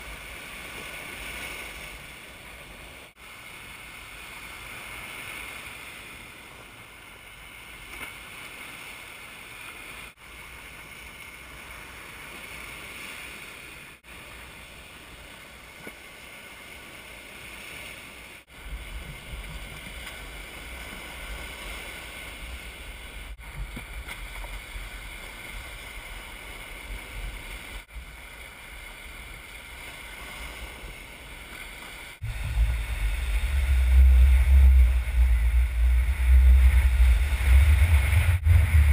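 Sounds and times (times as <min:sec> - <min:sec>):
small waves breaking on beach: 0:00.0 - 0:38.9
wind buffeting microphone: 0:32.2 - 0:38.9.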